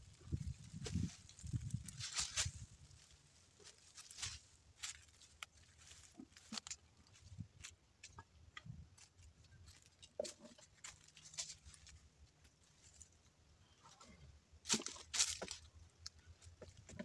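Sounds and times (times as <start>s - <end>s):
footsteps on dry leaves: 0.3s - 7.7s, 14.6s - 15.7s.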